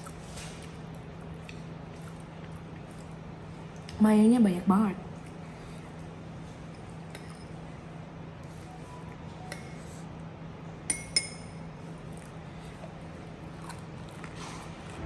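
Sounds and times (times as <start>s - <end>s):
steady low hum: 0.0s - 15.0s
spoon clinking on ceramic bowl: 6.7s - 7.6s, 10.9s - 11.7s.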